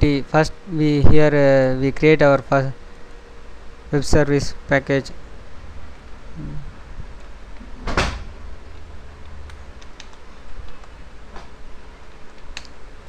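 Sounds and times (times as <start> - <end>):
steady low hum: 0.0 - 13.0
noisy thump: 7.8 - 8.4
computer keys typing: 8.7 - 11.0.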